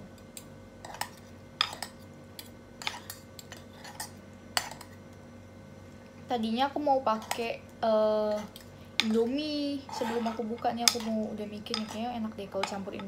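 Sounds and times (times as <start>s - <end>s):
cutlery clinking against a pan: 0.3s - 5.0s, 9.9s - 13.0s.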